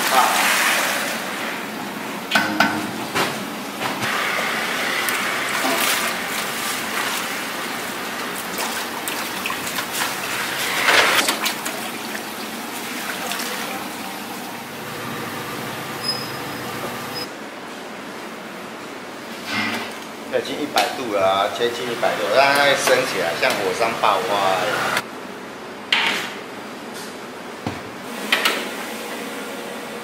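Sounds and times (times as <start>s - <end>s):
water splashing and draining: 4.6s - 15.0s.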